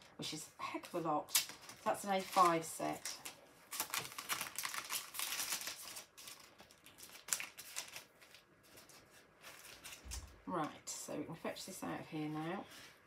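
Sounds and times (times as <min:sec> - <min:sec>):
plastic sheet crinkling: 0:00.7 - 0:10.4.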